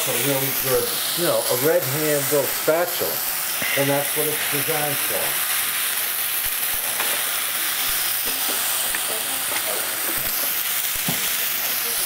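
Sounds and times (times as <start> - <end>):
stuffing sizzling in a pan: 0.0 - 12.0
spatula stirring in a pan: 3.2 - 4.6, 5.3 - 11.8.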